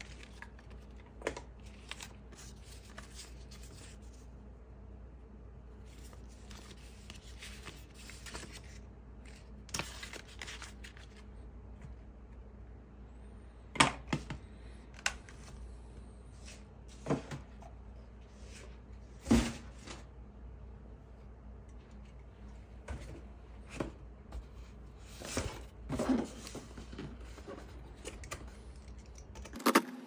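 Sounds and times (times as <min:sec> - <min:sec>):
paper rustling: 0:00.0 - 0:04.3, 0:05.8 - 0:11.3.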